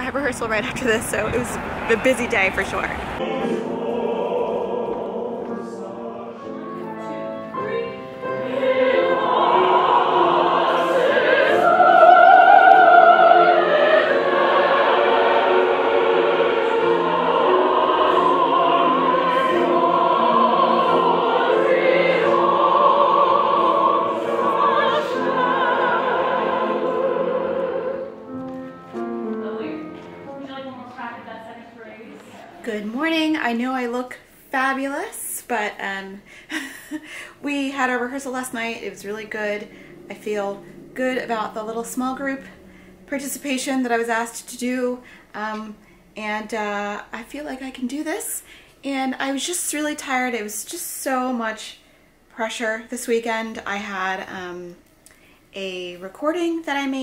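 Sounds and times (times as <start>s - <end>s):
choir singing: 3.1s - 31.2s, 37.6s - 45.0s.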